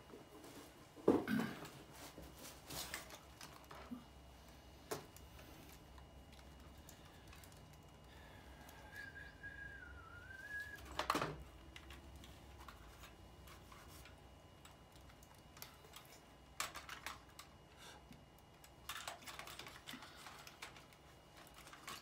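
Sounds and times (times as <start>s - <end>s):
plastic toy parts clicking: 14.6s - 17.8s, 18.5s - 22.0s.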